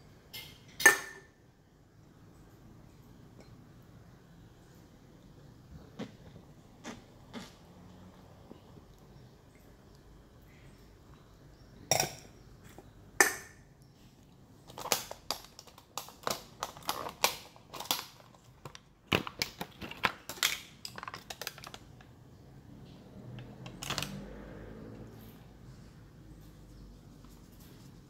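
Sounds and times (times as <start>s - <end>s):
plastic containers clicking and crackling: 14.6s - 22.2s, 23.3s - 24.3s.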